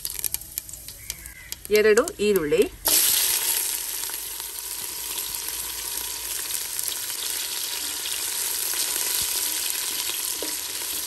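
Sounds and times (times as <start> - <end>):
onions sizzling in oil: 2.8 - 11.0.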